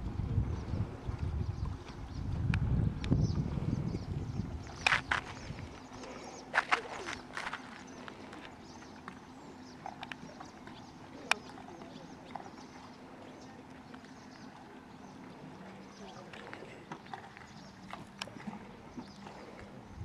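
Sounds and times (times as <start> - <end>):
footsteps on gravel: 4.8 - 8.5.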